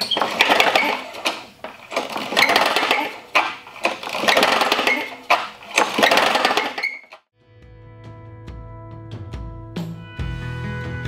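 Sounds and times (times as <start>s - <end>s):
lawnmower engine cranking with pull-start: 0.0s - 7.2s.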